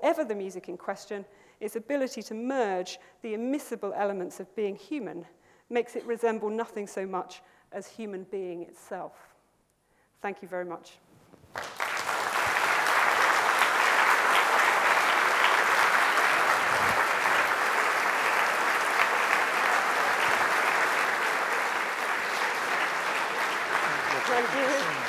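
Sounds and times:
audience applauding: 11.5 - 25.0.

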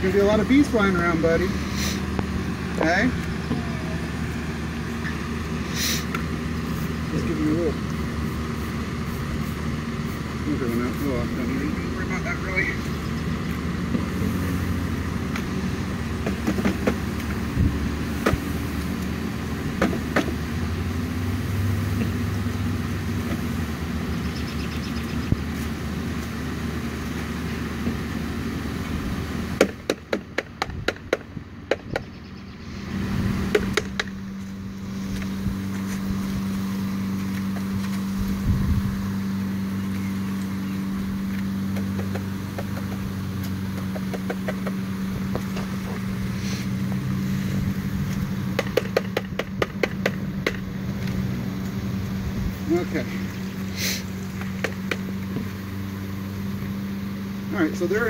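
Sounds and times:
sharp knocks on wooden box: 29.6 - 32.1, 43.7 - 45.7, 48.6 - 50.6.

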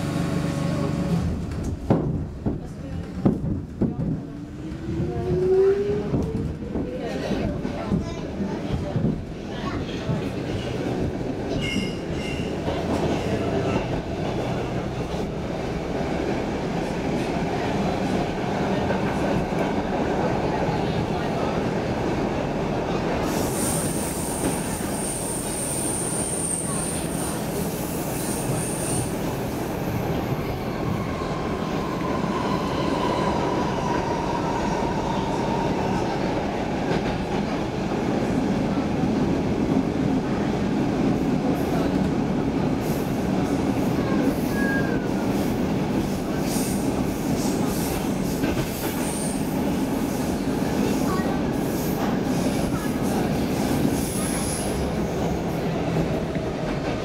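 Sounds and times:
wheels rumbling on rail: 0.0 - 57.0
faint wheel squeal: 44.5 - 45.1.

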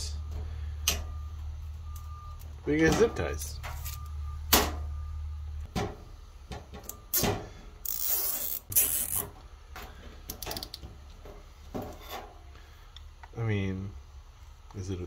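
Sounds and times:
zip tie zipping rasp: 7.9 - 9.3.

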